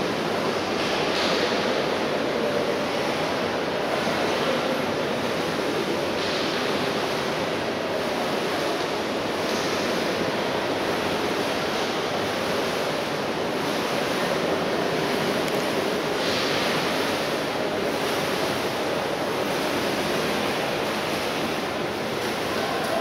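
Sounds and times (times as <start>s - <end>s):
swimmers splashing: 7.8s - 23.0s.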